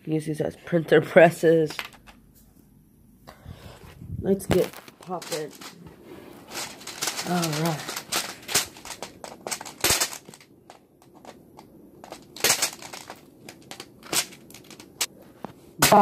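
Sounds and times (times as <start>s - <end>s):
handling rustle: 3.6s - 16.0s.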